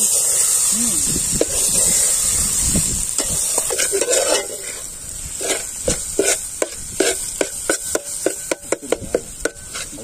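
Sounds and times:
frying sizzle: 0.0s - 10.0s
metal spatula scraping a pot: 3.1s - 10.0s.

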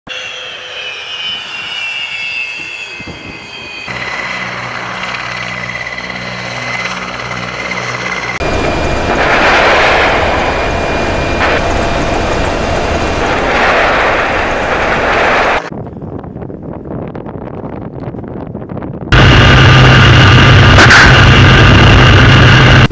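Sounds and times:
helicopter rotor blades beating: 0.1s - 15.7s, 19.1s - 22.9s
turbine engines whining: 0.1s - 15.7s, 19.1s - 22.9s
loud rushing noise: 8.4s - 15.7s, 19.1s - 22.9s.

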